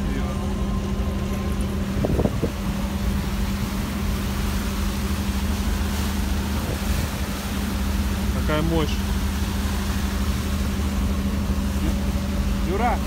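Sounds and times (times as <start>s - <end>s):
boat engines droning: 0.0s - 13.0s
wake churning: 1.2s - 13.0s
wind noise: 1.8s - 3.4s.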